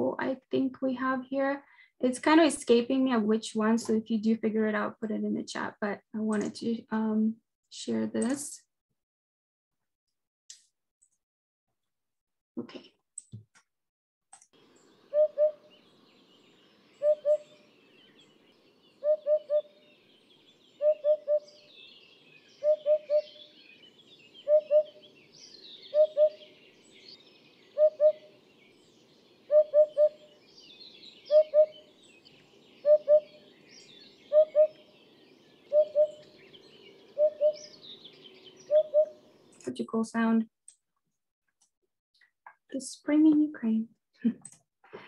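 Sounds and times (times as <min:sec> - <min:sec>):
birds chirping faintly: 0:14.5 - 0:40.5
soft low bird hoots: 0:15.1 - 0:15.7, 0:17.0 - 0:17.7, 0:19.0 - 0:19.8, 0:20.8 - 0:21.6, 0:22.6 - 0:23.6, 0:24.4 - 0:25.1, 0:25.8 - 0:26.6, 0:27.6 - 0:28.4, 0:29.5 - 0:30.4, 0:31.3 - 0:31.9, 0:32.8 - 0:34.9, 0:35.6 - 0:39.3.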